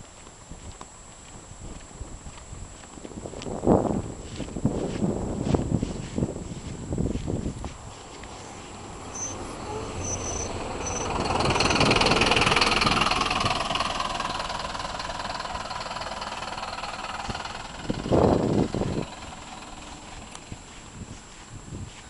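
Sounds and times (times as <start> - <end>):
bus passing by: 7.8 - 21.6.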